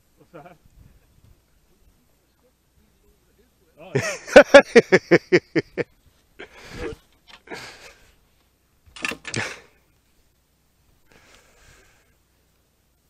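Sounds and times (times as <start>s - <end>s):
person laughing hard: 4.0s - 7.8s
wheezing breaths: 6.4s - 8.2s, 11.1s - 12.2s.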